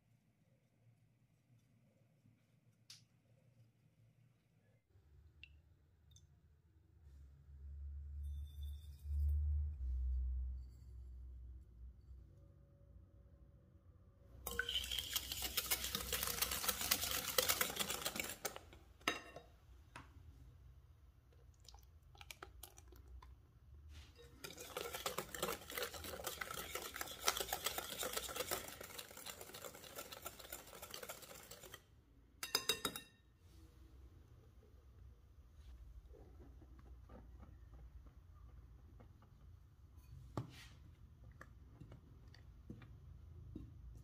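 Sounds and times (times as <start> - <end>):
wire whisk rattling in glass bowl: 14.5 - 18.8, 24.2 - 33.0
clink: 32.4 - 33.2.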